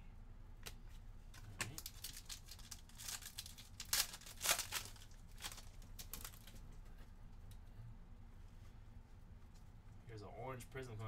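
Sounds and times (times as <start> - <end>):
foil wrapper tearing and crinkling: 1.7 - 6.6.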